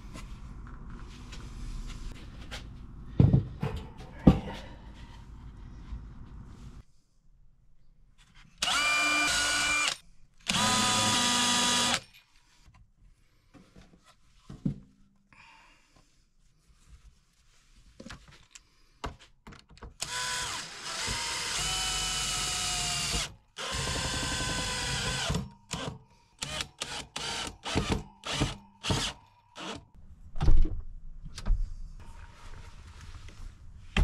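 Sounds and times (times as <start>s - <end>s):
power drill running: 8.6s - 12.0s, 20.0s - 29.8s.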